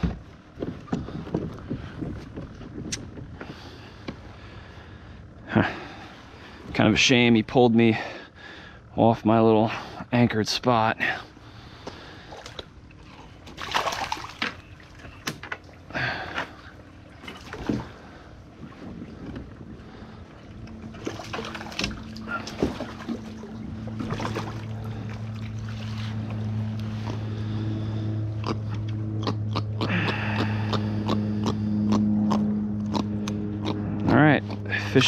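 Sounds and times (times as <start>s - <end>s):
steady low hum: 0.0s - 35.0s
fish splashing: 12.0s - 18.3s, 20.8s - 28.0s.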